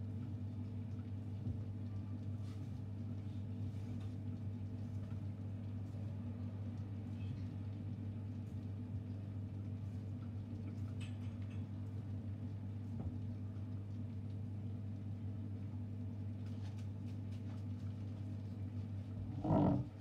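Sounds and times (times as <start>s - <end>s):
steady low hum: 11.6s - 20.0s.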